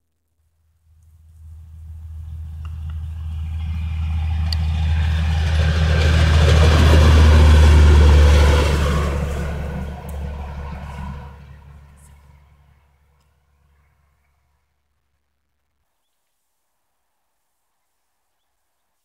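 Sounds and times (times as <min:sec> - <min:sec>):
wheels on rails: 0:01.4 - 0:12.6
diesel engine passing by: 0:01.4 - 0:14.1.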